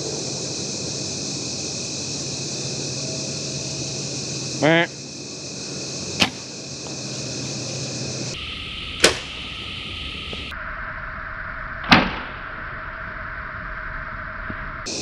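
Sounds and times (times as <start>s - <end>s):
steady hiss: 0.0s - 15.0s
bow string snap: 9.0s - 9.3s.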